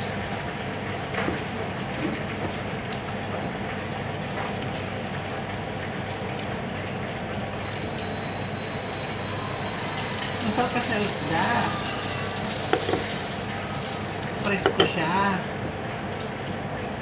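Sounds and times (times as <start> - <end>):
machine drone with low hum: 0.0 - 17.0
high steady whine: 7.6 - 15.4.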